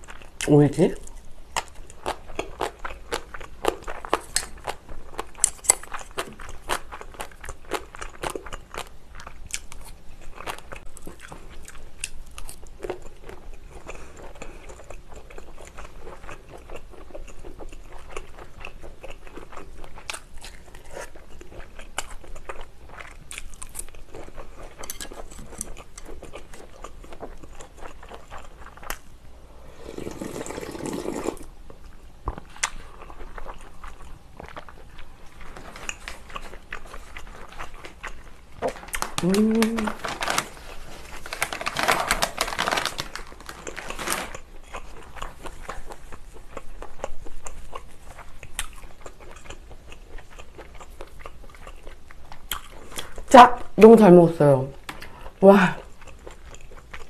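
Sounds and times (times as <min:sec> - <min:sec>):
close chewing and crunching: 0:00.0 - 0:29.2, 0:30.2 - 0:54.0, 0:54.8 - 0:57.0
person sipping a drink: 0:29.4 - 0:31.5.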